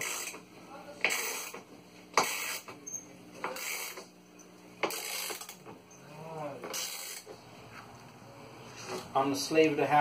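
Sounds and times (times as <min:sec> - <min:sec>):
rasping metal-on-metal strokes: 0:02.2 - 0:04.1.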